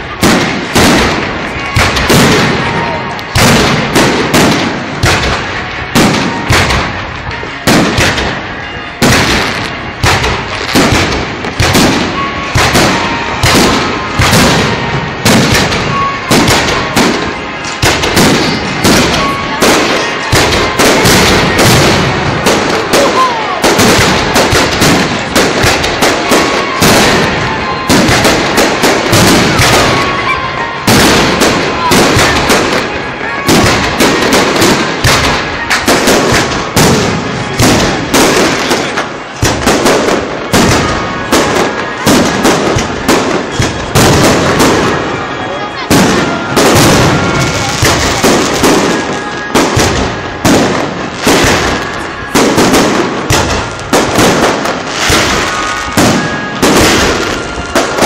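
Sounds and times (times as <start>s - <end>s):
fireworks bursting: 0.0s - 58.0s.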